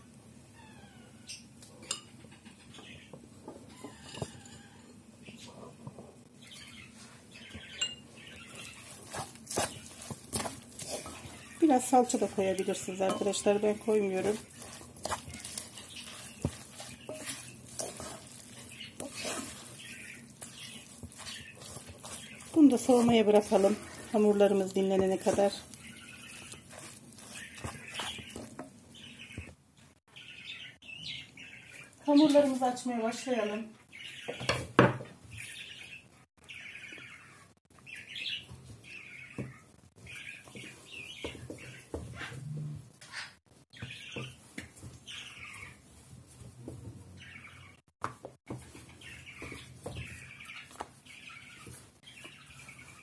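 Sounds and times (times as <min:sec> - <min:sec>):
light sizzle of frying: 0:00.0 - 0:53.0
spoon scraping a pan: 0:03.4 - 0:06.0, 0:07.6 - 0:29.5
small bird chirping: 0:10.9 - 0:32.5.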